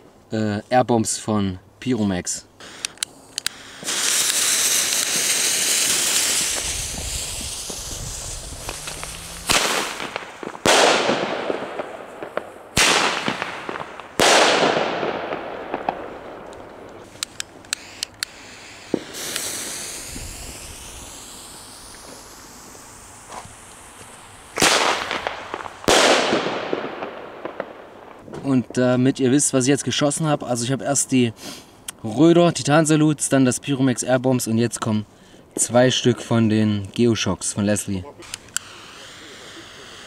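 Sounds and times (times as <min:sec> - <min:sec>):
fuse hissing: 0:02.6 - 0:10.6, 0:17.0 - 0:25.8, 0:38.3 - 0:40.0
smaller firecracker cracks: 0:02.6 - 0:22.5, 0:24.5 - 0:28.2
firecracker bangs echoing: 0:03.6 - 0:17.1, 0:18.5 - 0:21.1, 0:24.5 - 0:28.4.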